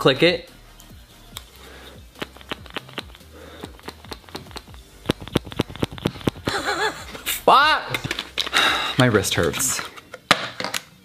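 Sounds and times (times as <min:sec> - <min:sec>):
plastic pump bottle clicks: 0:02.2 - 0:06.5.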